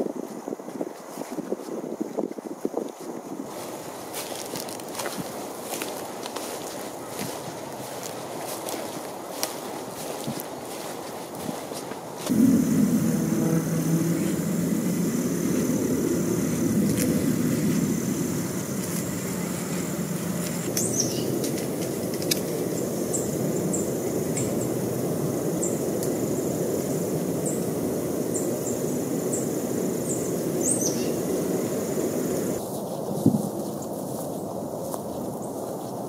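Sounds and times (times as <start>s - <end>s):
distant traffic rumble: 12.2s - 32.6s
downward-sweeping bird calls: 12.3s - 21.4s, 28.3s - 32.6s
small birds chirping: 12.3s - 24.8s, 28.3s - 32.6s.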